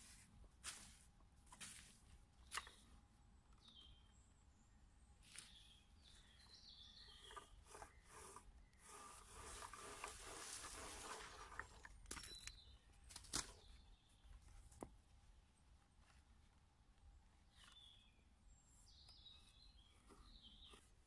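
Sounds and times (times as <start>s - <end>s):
rope rustling through wood: 0.0s - 3.0s, 7.0s - 18.1s
faint bird chirps: 2.4s - 11.2s, 17.3s - 21.0s.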